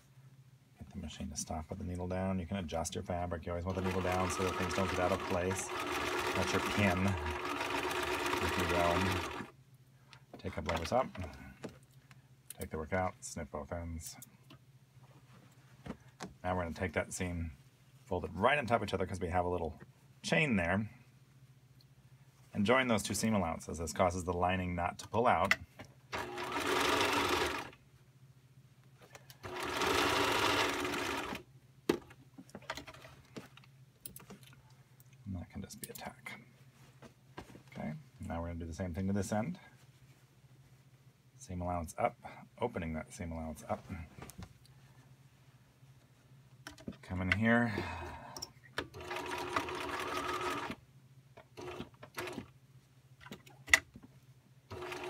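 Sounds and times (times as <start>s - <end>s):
sewing machine stitching: 3.7s - 9.5s, 26.1s - 27.8s, 29.4s - 31.4s, 48.9s - 50.8s, 51.6s - 52.5s, 54.7s - 55.0s.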